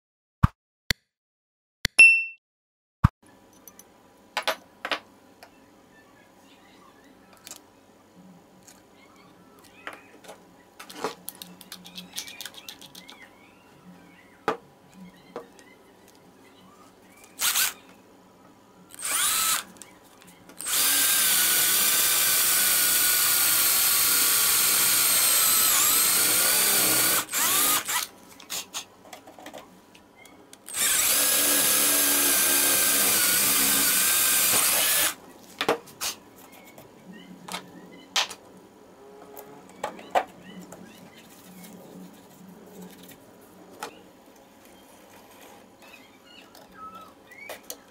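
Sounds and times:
power drill whining: 17.4s - 17.8s, 18.9s - 19.7s, 20.6s - 28.1s, 30.7s - 35.2s.

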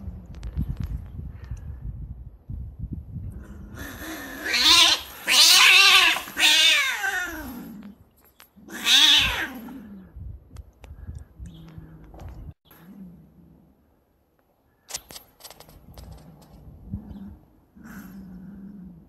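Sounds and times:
cats yowling and screeching: 3.8s - 7.8s, 8.7s - 9.9s.

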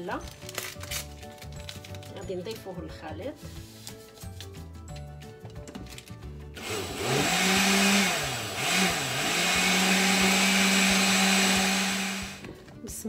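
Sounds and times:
blender motor whining: 6.6s - 12.5s.

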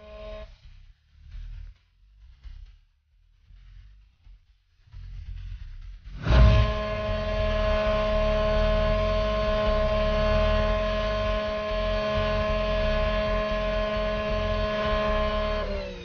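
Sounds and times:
racing engine running loudly: 6.2s - 16.0s.

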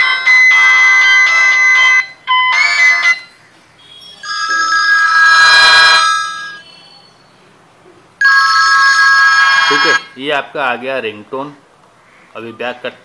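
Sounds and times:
phone ringtone electronic tones: 0.0s - 6.7s, 8.2s - 10.2s.

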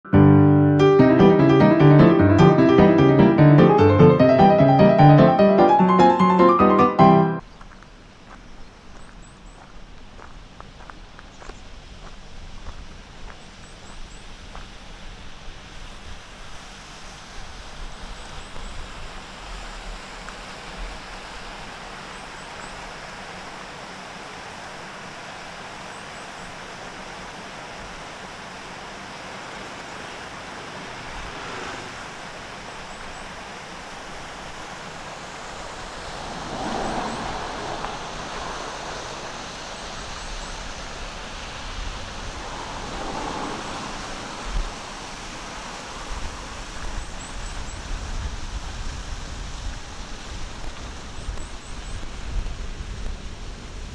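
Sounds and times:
cars passing: 30.0s - 32.9s, 35.3s - 40.5s, 41.1s - 46.0s.

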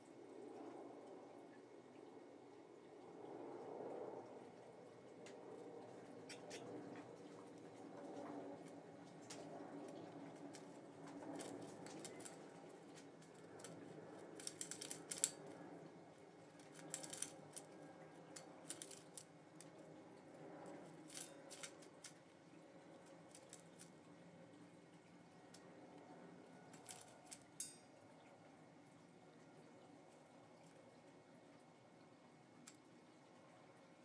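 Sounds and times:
bird pecking seed in metal bowl: 9.3s - 15.5s, 16.6s - 19.8s, 20.7s - 22.2s, 23.0s - 24.0s, 26.7s - 27.9s.

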